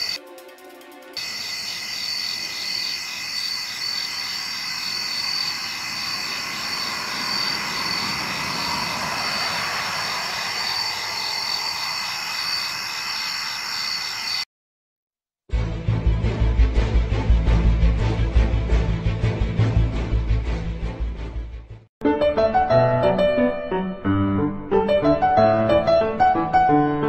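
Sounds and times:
crickets trilling: 0.0s - 0.2s, 1.2s - 14.4s
low rushing noise: 6.2s - 12.7s.

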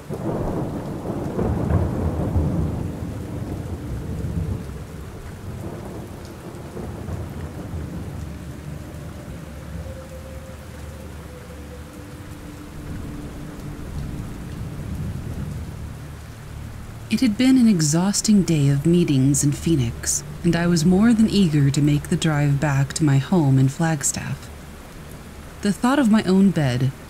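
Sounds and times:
thunder rolling: 0.0s - 9.9s, 12.0s - 23.0s
steady rain: 0.0s - 27.0s.

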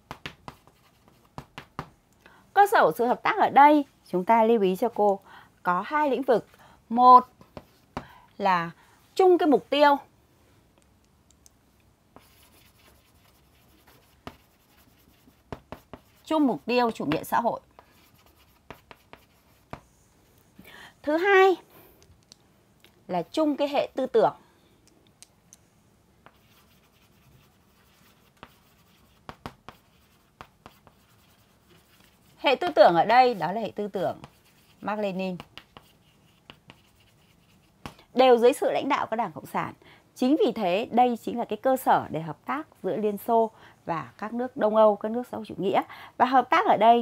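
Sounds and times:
chalk tapping on board: 0.0s - 2.0s, 12.2s - 20.0s, 26.2s - 33.5s, 34.1s - 38.0s
chalk scratching on blackboard: 0.1s - 1.9s, 12.2s - 20.1s, 26.2s - 37.9s.

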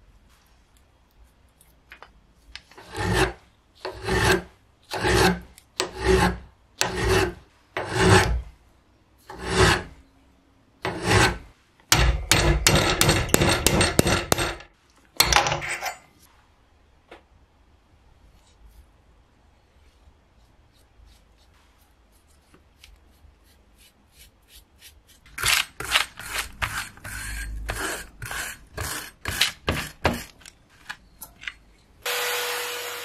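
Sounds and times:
hand file rasping on metal: 2.8s - 8.4s, 9.3s - 9.9s, 10.8s - 14.6s, 24.2s - 30.3s.

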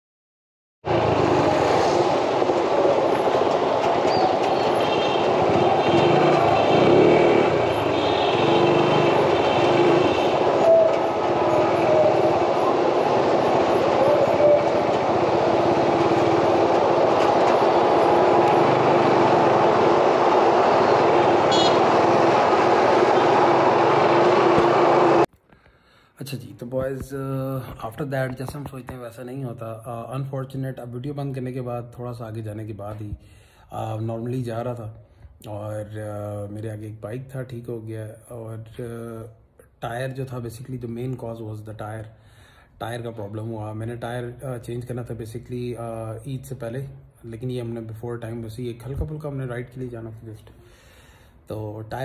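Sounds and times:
motorcycle engine hum: 0.9s - 25.2s
road and wind noise: 0.9s - 25.3s.

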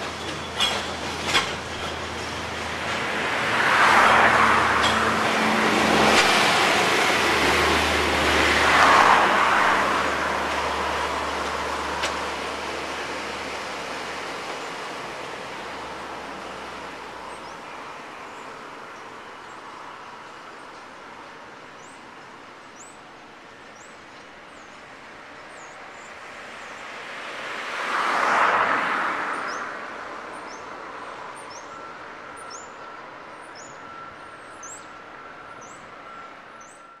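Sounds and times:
vehicle passing by: 2.5s - 14.4s.

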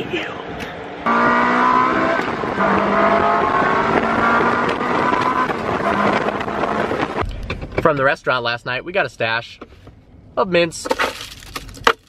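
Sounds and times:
sports car engine running: 1.0s - 7.8s
wind noise: 1.8s - 7.8s.

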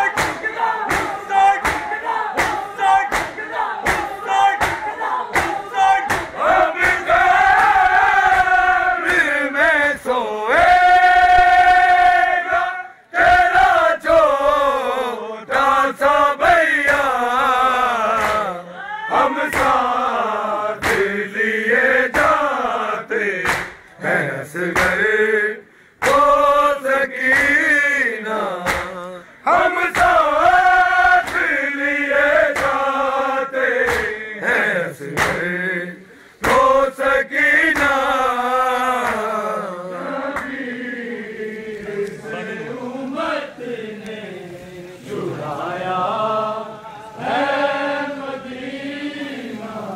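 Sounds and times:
hands slapping chests: 0.0s - 9.3s, 18.1s - 18.6s, 19.4s - 19.9s, 20.8s - 21.2s, 22.1s - 22.5s, 23.4s - 24.1s, 24.7s - 25.1s, 26.0s - 26.4s, 27.2s - 27.6s, 28.6s - 29.0s, 29.9s - 30.3s, 31.2s - 31.6s, 32.4s - 32.9s, 33.8s - 34.2s, 35.0s - 35.5s, 36.4s - 36.8s, 37.7s - 38.0s, 39.0s - 39.4s, 40.3s - 40.6s
man reciting: 0.0s - 47.2s
men chanting a lament: 0.0s - 49.9s.

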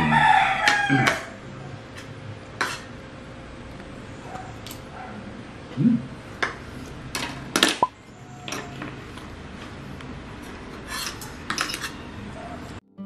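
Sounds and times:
cutlery clinking on plate: 11.0s - 12.0s.

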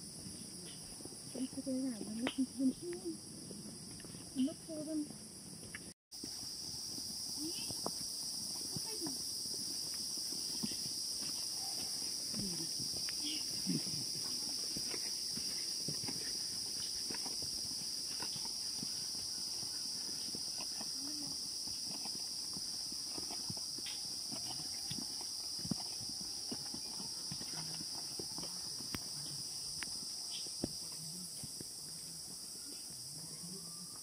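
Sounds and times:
insect chorus: 0.0s - 34.0s
footsteps on rocks: 9.5s - 30.8s.

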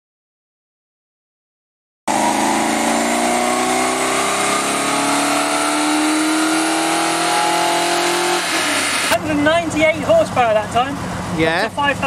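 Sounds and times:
car engine revving at full throttle: 2.1s - 9.2s.

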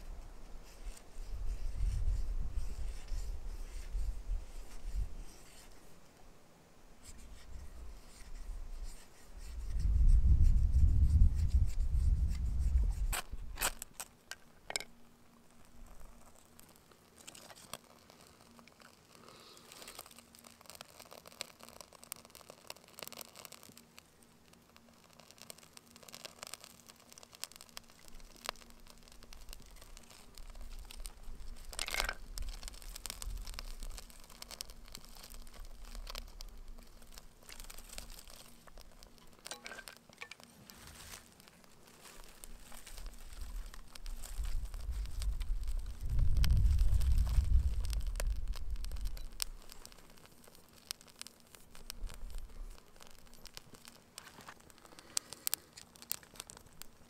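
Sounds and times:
fire crackling: 0.0s - 57.0s
twigs rustling: 7.0s - 57.0s
low rumble on microphone: 43.3s - 49.4s.

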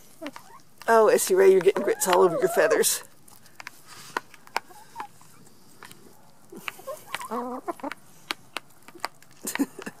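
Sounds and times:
beaks pecking on paper plate: 0.0s - 10.0s
hen clucking: 0.1s - 3.1s, 4.4s - 5.4s, 6.6s - 8.1s.

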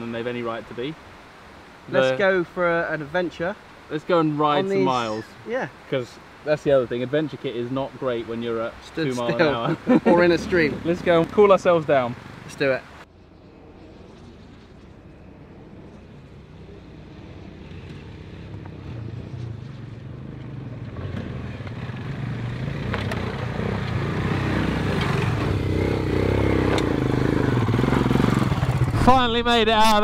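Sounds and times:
motorcycle engines climbing: 6.2s - 29.2s.

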